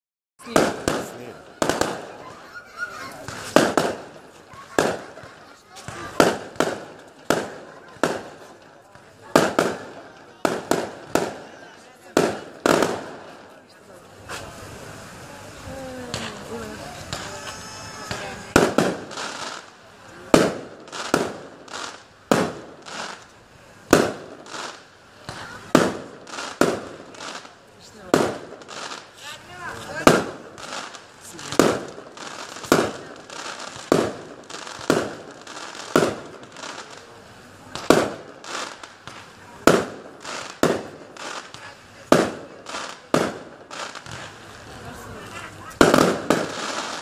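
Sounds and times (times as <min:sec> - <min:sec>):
hissing firework bursts: 0:00.4 - 0:47.0
firework shells bursting: 0:45.6 - 0:47.0.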